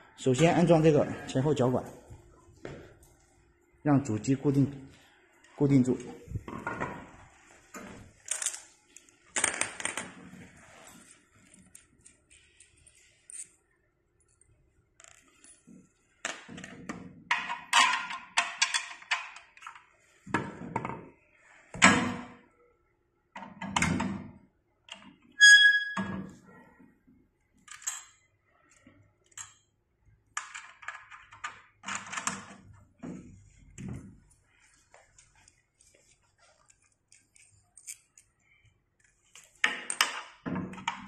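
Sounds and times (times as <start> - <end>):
metal parts knocking and clinking: 17.3 - 19.7.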